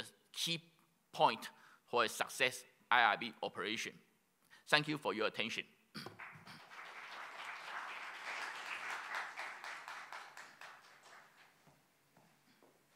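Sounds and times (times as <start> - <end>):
audience applauding: 6.1 - 11.7.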